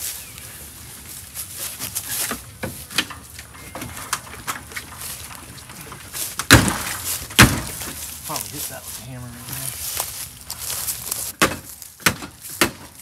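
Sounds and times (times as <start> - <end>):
loud thump: 6.4 - 7.9.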